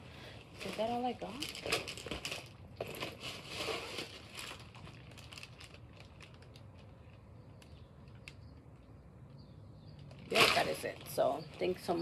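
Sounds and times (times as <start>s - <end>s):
plastic bag rustling: 0.5s - 7.3s, 10.1s - 12.0s.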